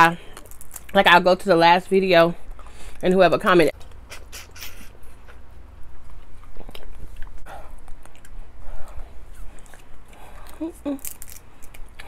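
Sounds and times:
mouth clicks and smacks: 0:03.8 - 0:05.4.

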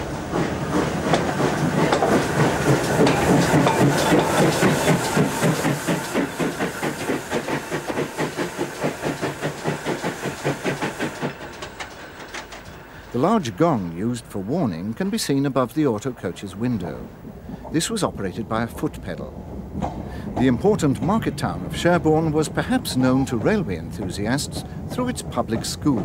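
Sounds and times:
steam hissing: 0:00.0 - 0:18.2
steam locomotive exhaust beats: 0:00.0 - 0:26.0.

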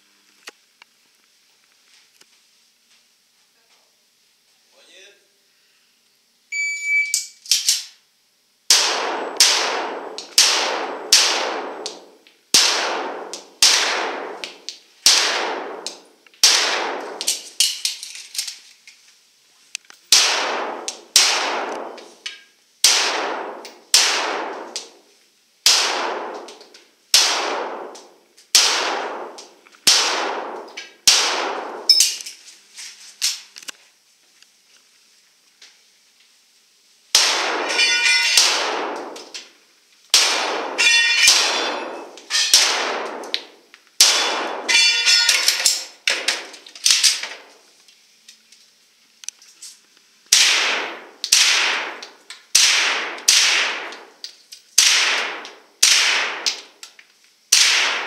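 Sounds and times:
handgun shots echoing: 0:37.2 - 0:39.4, 0:40.2 - 0:47.4, 0:50.3 - 0:54.1, 0:54.8 - 0:56.7.

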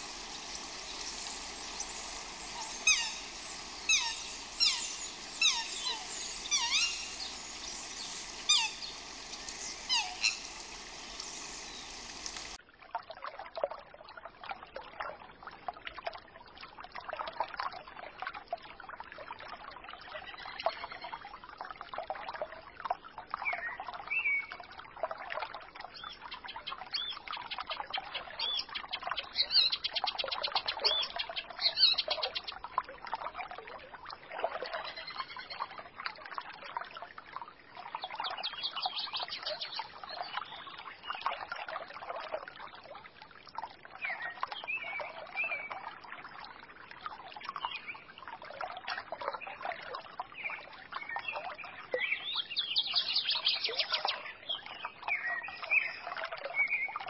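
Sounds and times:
downward-sweeping bird calls: 0:00.0 - 0:12.6
short bird chirps: 0:00.0 - 0:12.6
steady hiss: 0:00.0 - 0:12.6
water trickling over stones: 0:00.0 - 0:57.0.

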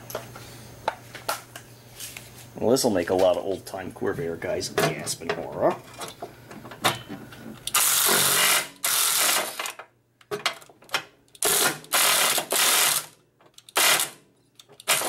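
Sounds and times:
electric ratchet whirring: 0:07.7 - 0:09.8, 0:11.4 - 0:14.2, 0:14.8 - 0:15.0.

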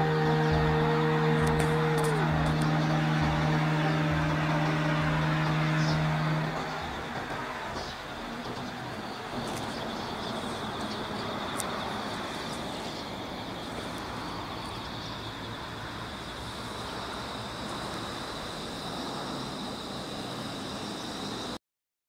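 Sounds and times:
high-pitched trill: 0:00.0 - 0:08.5
distant road traffic hum: 0:00.0 - 0:21.6.

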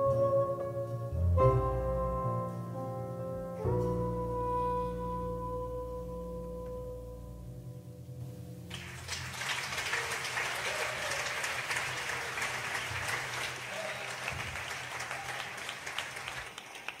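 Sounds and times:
audience applauding: 0:08.7 - 0:17.0.

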